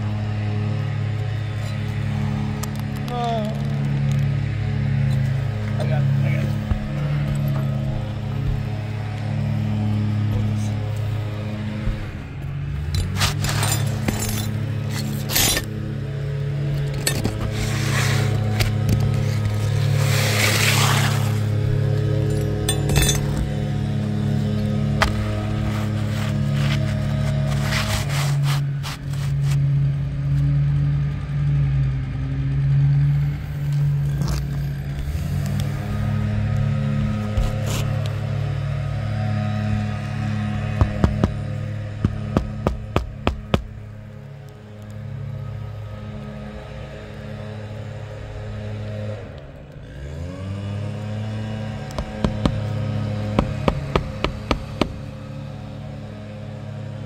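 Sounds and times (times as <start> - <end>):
steady low drone: 0.0 - 57.0
roof shingle scraping and crackling: 1.6 - 29.8, 33.7 - 38.5, 51.4 - 55.4
hammer prying shingle clicks: 40.8 - 43.7, 51.8 - 55.0.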